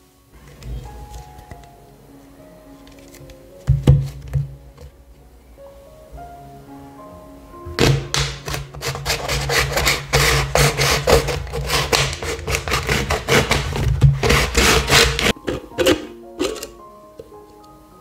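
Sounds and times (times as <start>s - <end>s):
soft background music: 0.0s - 18.0s
knife sawing plastic bottle: 8.4s - 15.4s.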